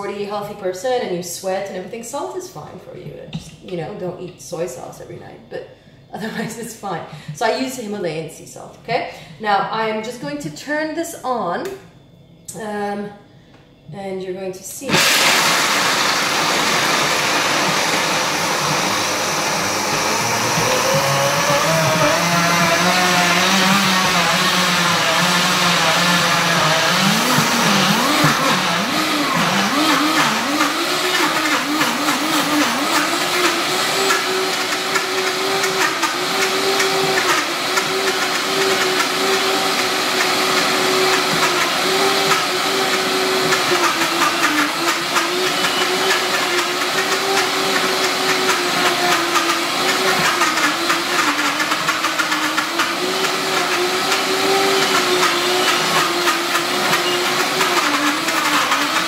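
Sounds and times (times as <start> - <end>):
blender grinding nuts: 14.9 - 59.0.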